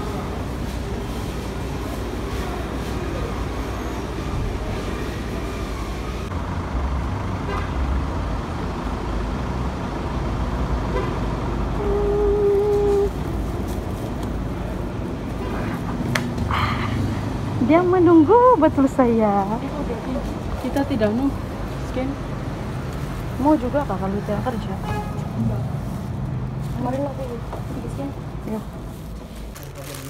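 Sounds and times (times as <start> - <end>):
street traffic noise: 0.0 - 30.0
vehicle horn: 7.5 - 7.8, 10.9 - 11.2, 24.8 - 25.3.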